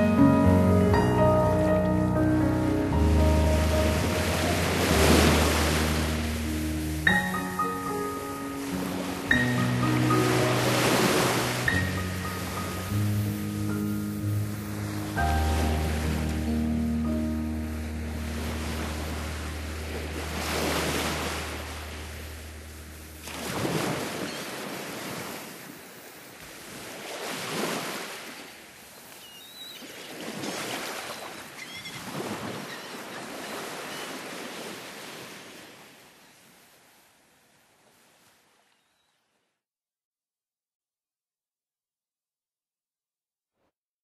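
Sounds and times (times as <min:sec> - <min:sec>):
ocean surf washing in: 0:00.0 - 0:29.0.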